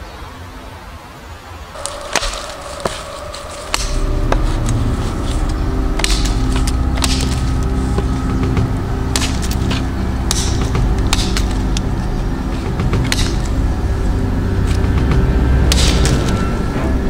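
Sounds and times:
background music: 0:00.0 - 0:17.0
knife chopping wood: 0:01.8 - 0:04.8, 0:05.4 - 0:13.6.

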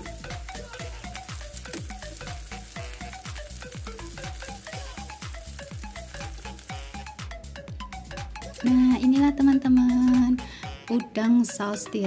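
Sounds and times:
shrimp sizzling in a pan: 0:00.0 - 0:07.2
background music with steady beat: 0:00.0 - 0:12.0.

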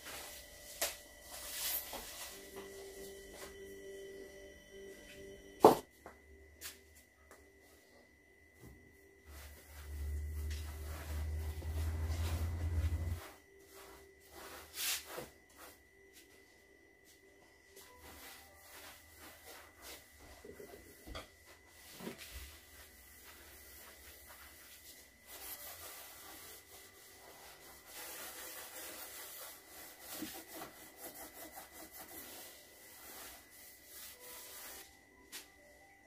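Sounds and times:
cloth rubbing on wooden counter: 0:09.3 - 0:15.8, 0:21.8 - 0:34.9.

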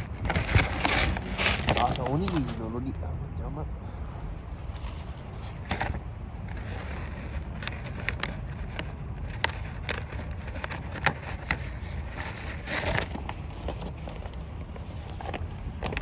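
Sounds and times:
plastic packaging crinkling: 0:00.0 - 0:02.7.

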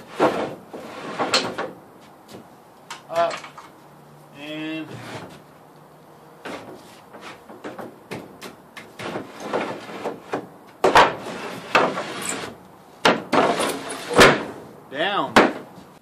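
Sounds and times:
wooden door sliding on tracks: 0:00.0 - 0:01.8, 0:04.9 - 0:05.4, 0:08.8 - 0:14.7.

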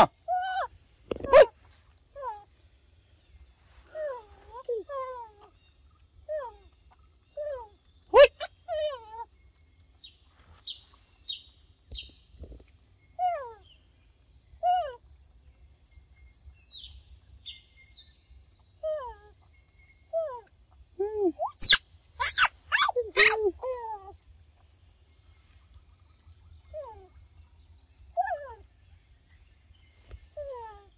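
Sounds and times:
whistled animal calls: 0:21.3 - 0:23.5.

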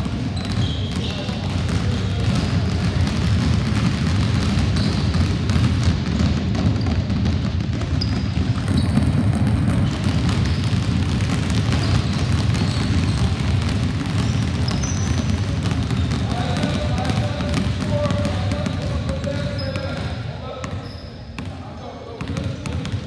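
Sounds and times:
basketballs bouncing on hardwood floor: 0:00.0 - 0:23.0
shoe squeaks: 0:00.3 - 0:01.4, 0:04.7 - 0:05.2, 0:07.9 - 0:10.8, 0:11.7 - 0:13.4, 0:14.1 - 0:16.6, 0:19.2 - 0:22.7.

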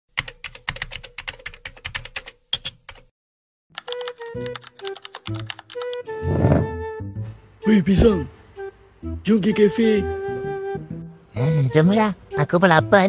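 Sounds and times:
keyboard typing clicks: 0:03.8 - 0:06.0
light melodic music: 0:03.8 - 0:13.0.

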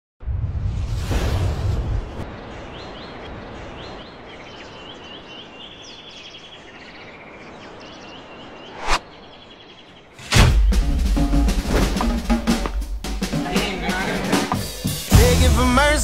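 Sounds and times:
birds chirping in trills: 0:02.2 - 0:13.6.

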